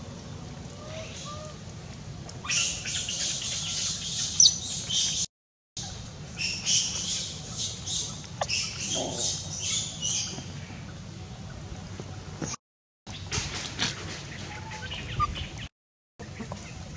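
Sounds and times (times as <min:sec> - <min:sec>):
baby monkey squealing: 0:14.6 - 0:15.4.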